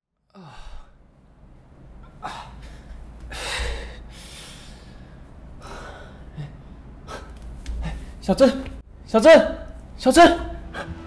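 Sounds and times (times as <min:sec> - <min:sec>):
person gasping and breathing heavily: 0:00.3 - 0:01.0, 0:02.2 - 0:08.2.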